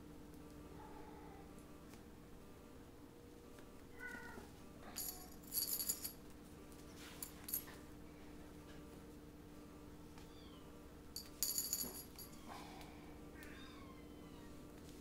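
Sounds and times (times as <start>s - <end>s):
toy bell jingling: 11.2s - 12.4s.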